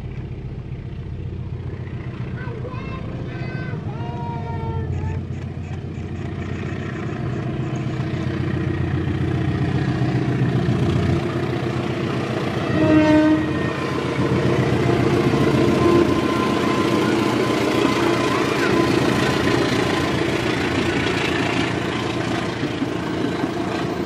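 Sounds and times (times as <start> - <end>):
locomotive engine and wheels: 0.0 - 24.0
train horn: 12.6 - 14.2, 15.3 - 20.1.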